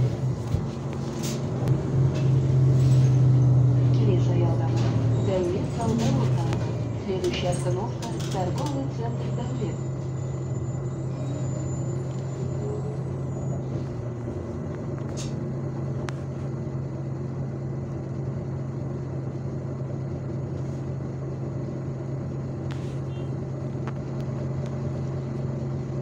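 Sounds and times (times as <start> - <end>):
bus engine low hum: 0.0 - 26.0.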